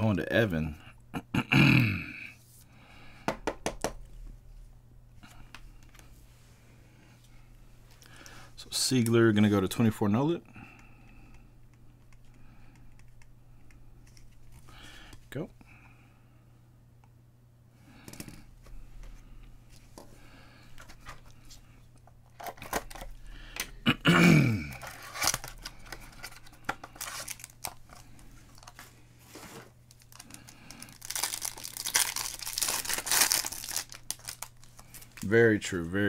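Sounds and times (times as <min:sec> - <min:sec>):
foil wrapper crinkling: 0:24.8 - 0:28.8, 0:29.8 - 0:35.4
foil wrapper tearing: 0:26.9 - 0:28.8, 0:29.9 - 0:35.3.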